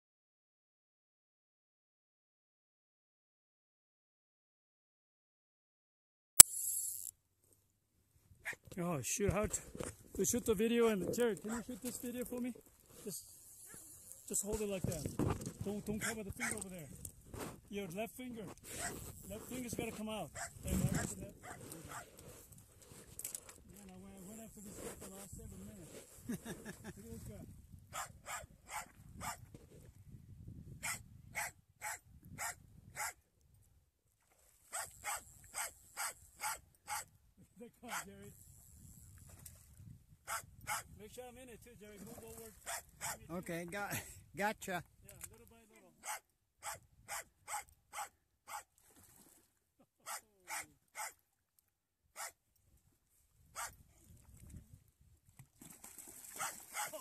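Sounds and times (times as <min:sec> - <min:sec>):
dog barking excitedly: 0:18.8 - 0:19.0, 0:21.4 - 0:22.0, 0:27.9 - 0:29.4, 0:30.8 - 0:33.2, 0:34.7 - 0:37.1, 0:40.3 - 0:40.9, 0:42.7 - 0:43.2, 0:46.0 - 0:48.7, 0:50.0 - 0:51.2, 0:52.2 - 0:52.4, 0:53.6 - 0:53.8, 0:56.4 - 0:57.0.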